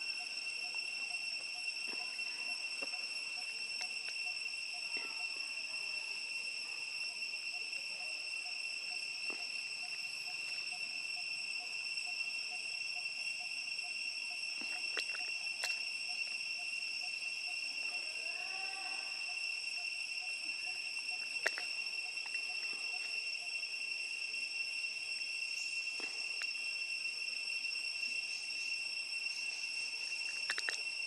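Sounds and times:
insects buzzing: 0:00.0 - 0:31.0
sharp clicks: 0:21.4 - 0:22.4, 0:30.3 - 0:30.8.

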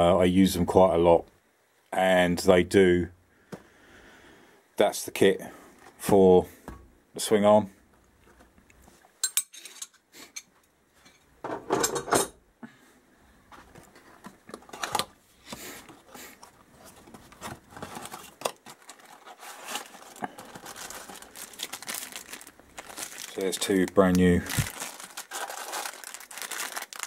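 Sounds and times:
packaging rustle: 0:15.8 - 0:27.0.

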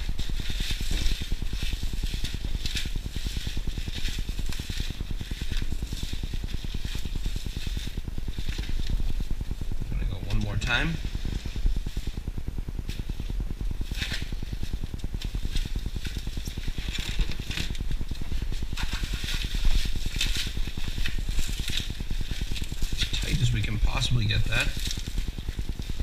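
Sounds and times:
plastic cling film crinkling: 0:00.0 - 0:26.0
steady low rumble: 0:00.0 - 0:26.0.

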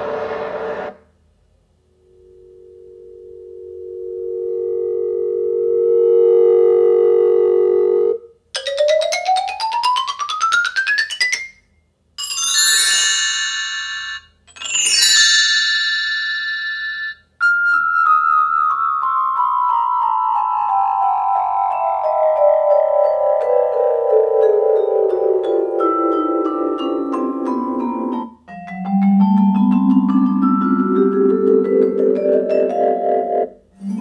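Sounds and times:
rising sweep: 0:00.0 - 0:01.1
synthetic whine: 0:00.0 - 0:01.1, 0:01.9 - 0:08.2.

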